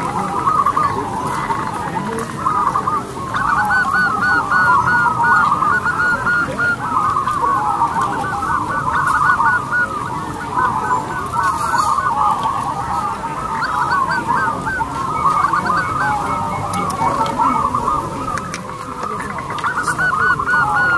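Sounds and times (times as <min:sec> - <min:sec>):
doves cooing: 0:00.0 - 0:20.9.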